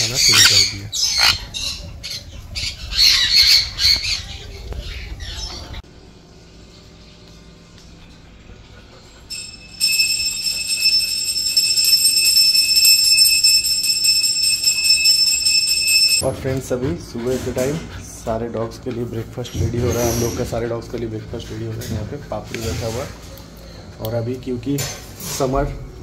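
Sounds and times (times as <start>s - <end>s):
birds squawking: 0.0s - 5.8s
high-pitched ringing tone: 9.2s - 16.2s.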